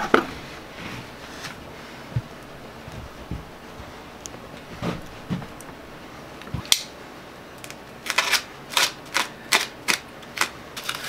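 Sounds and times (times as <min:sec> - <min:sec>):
packing wrap crinkling rips: 0:07.6 - 0:11.0.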